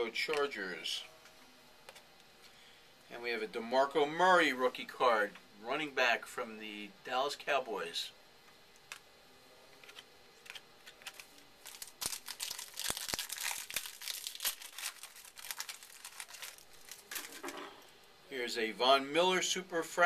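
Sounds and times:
cards rustling: 9.7 - 17.9
card wrapper crinkling and tearing: 9.8 - 17.5
sharp wrapper snaps: 10.4 - 17.4.

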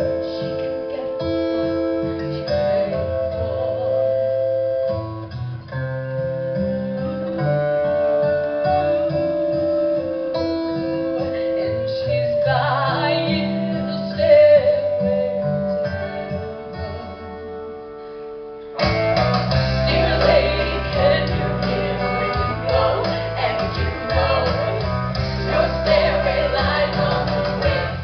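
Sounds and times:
guitar chords: 0.0 - 28.0
bass and drums: 18.8 - 28.0.

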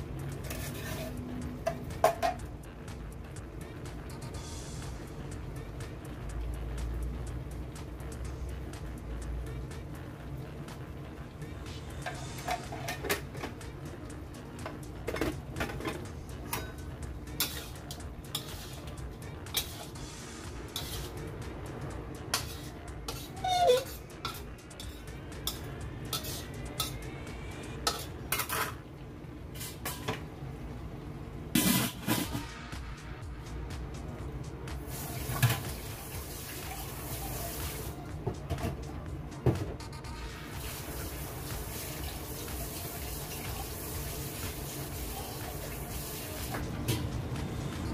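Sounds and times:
background music: 0.0 - 47.9.

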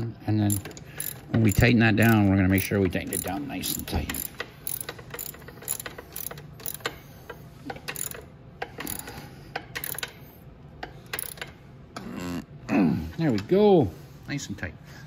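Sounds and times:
ratchet wrench clicking: 0.4 - 10.2, 10.8 - 11.6.

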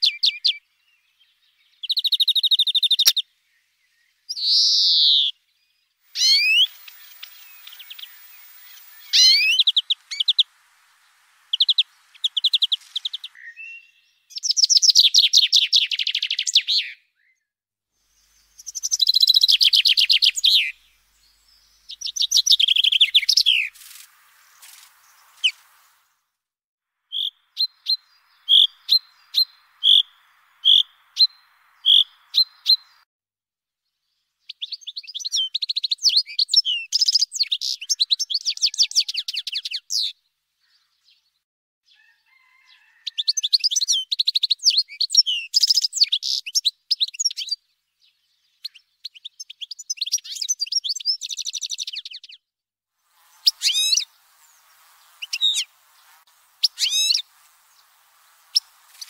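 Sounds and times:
songbird call notes: 0.0 - 17.4, 18.1 - 26.1, 27.1 - 33.0, 53.1 - 59.0
high twittering birdsong: 0.0 - 17.5, 18.1 - 26.2, 27.1 - 33.0, 34.0 - 52.5, 53.2 - 59.0.

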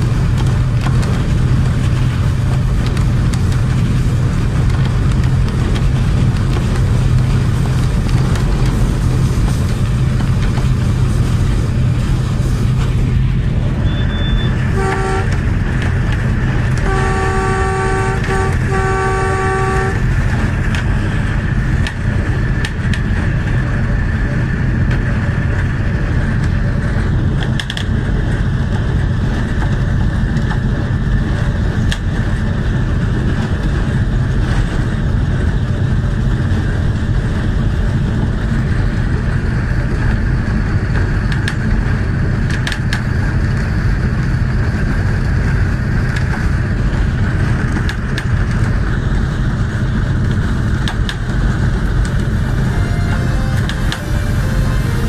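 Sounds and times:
engine and wheels rumbling: 0.0 - 55.0
locomotive horn: 13.8 - 20.5, 52.4 - 55.0.

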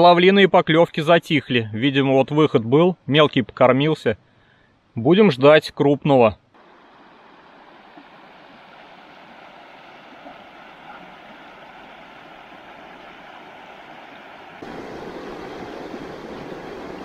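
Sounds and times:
river water rushing: 6.6 - 17.0.

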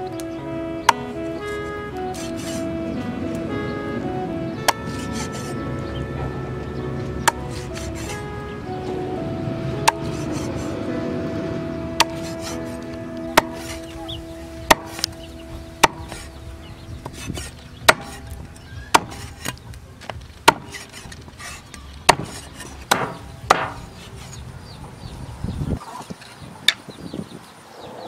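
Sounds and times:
meat cleaver chopping on wood: 2.1 - 2.6, 4.7 - 5.5, 7.2 - 8.2, 9.8 - 10.7, 12.0 - 12.7, 13.3 - 13.9, 14.7 - 15.2, 15.8 - 16.3, 17.0 - 19.6, 20.4 - 23.9.

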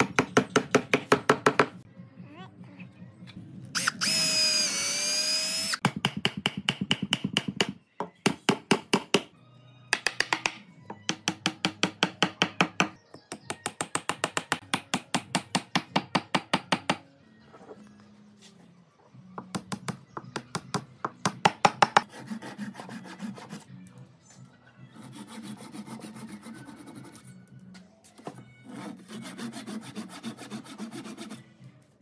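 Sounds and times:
power tool whirring: 3.8 - 5.8.

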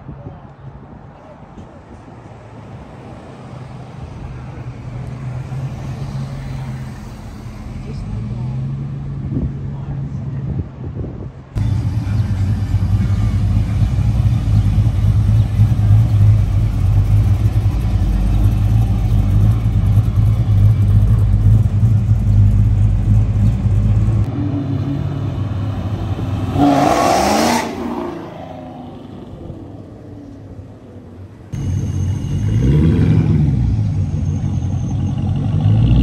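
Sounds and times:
deep engine rumble: 11.5 - 36.0
car engine revving: 11.6 - 30.1, 31.6 - 36.0.

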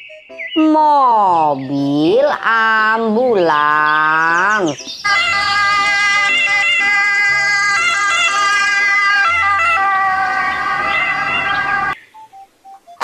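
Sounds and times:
ambulance siren: 5.0 - 13.0.

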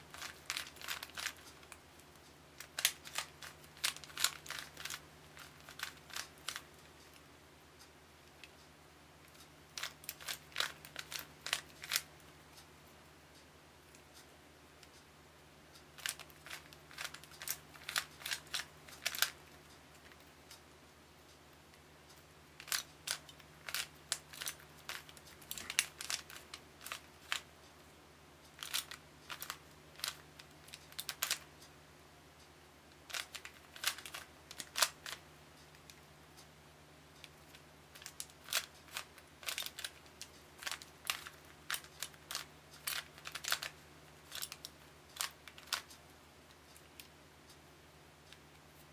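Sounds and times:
plastic puzzle cube clicking: 0.1 - 1.8, 2.6 - 6.6, 9.8 - 12.1, 16.0 - 19.4, 22.6 - 27.4, 28.6 - 31.4, 33.1 - 35.2, 38.0 - 45.9.

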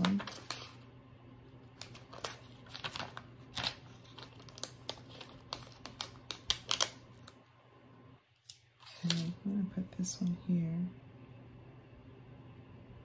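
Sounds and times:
stickers peeling and crinkling: 0.0 - 0.8, 1.7 - 7.4
low steady hum: 0.0 - 13.0.

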